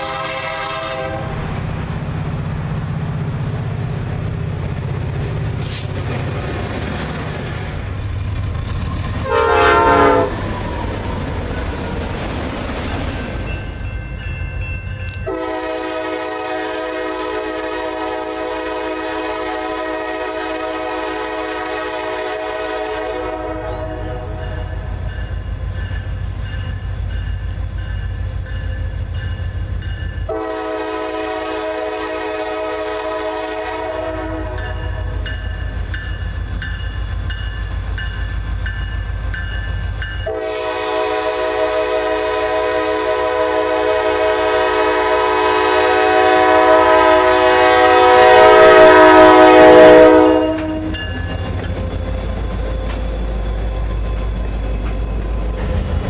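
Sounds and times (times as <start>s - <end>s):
locomotive air horn blasts: 0.0s - 1.4s, 9.2s - 10.4s, 15.2s - 24.7s, 30.3s - 35.2s, 40.2s - 51.0s
low rumble of locomotives: 0.0s - 56.0s.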